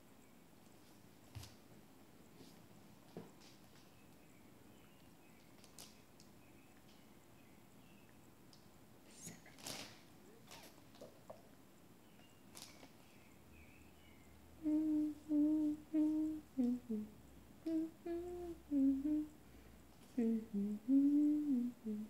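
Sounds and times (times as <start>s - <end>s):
woman humming a tune: 14.6s - 19.4s, 20.1s - 22.0s.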